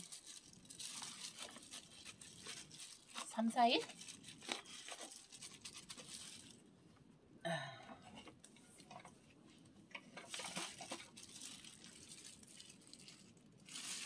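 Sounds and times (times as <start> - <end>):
dried peels rustling: 0.0 - 6.6, 10.2 - 14.0
plastic glove crinkling: 0.0 - 6.7, 10.2 - 14.0.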